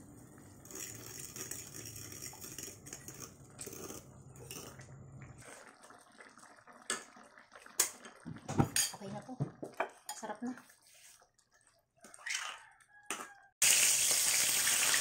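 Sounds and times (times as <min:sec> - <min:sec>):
metal spoon scraping bowl and pan: 0:00.6 - 0:04.8
liquid stirring: 0:00.6 - 0:04.9.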